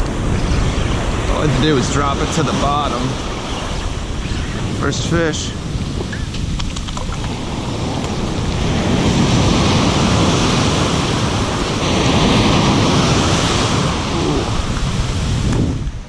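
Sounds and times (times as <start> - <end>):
ocean surf breaking on sand: 0.0 - 16.0.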